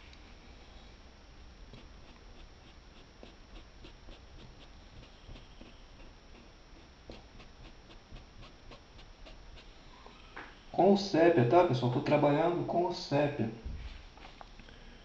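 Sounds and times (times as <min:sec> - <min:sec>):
low steady hum: 0:00.0 - 0:15.0
paintbrush strokes on cloth: 0:01.7 - 0:10.0.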